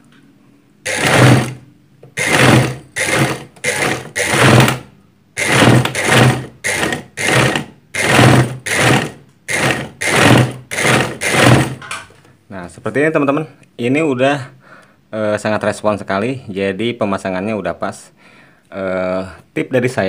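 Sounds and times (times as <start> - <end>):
sewing machine running fast: 0.9 - 1.6, 2.2 - 11.8.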